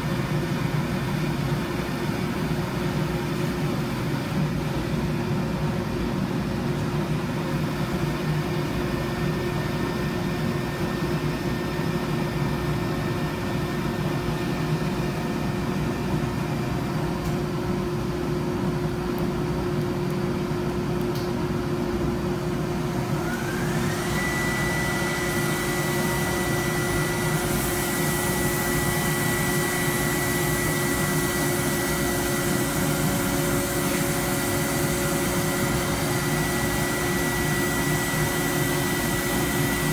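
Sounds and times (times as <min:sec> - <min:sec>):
motor whine: 0:22.6 - 0:39.9.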